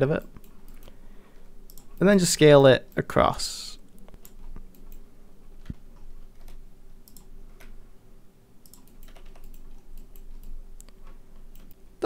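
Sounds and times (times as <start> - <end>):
faint steady hum: 0.0 - 12.0
computer keyboard and mouse clicks: 1.7 - 2.0, 4.0 - 5.0, 5.6 - 7.8, 8.6 - 11.8.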